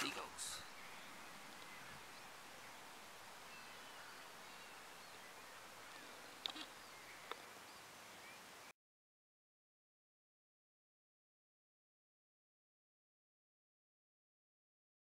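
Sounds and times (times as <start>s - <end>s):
distant bird calls: 0.0s - 8.7s
soft steady hiss: 0.0s - 8.7s.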